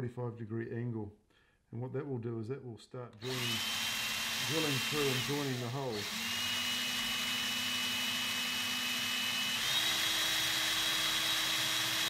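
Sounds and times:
cordless drill whining: 3.2 - 12.0
drill bit cutting plastic: 3.2 - 12.0.

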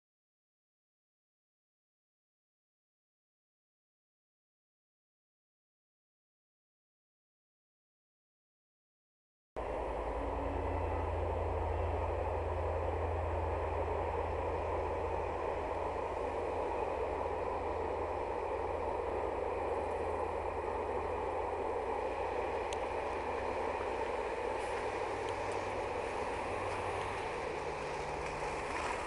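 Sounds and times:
constant hiss: 9.6 - 29.0
train rumbling over viaduct: 9.6 - 29.0.

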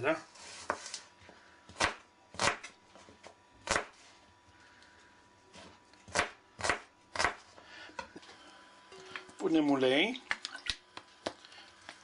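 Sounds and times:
knife chopping on plastic cutting board: 5.6 - 7.4.

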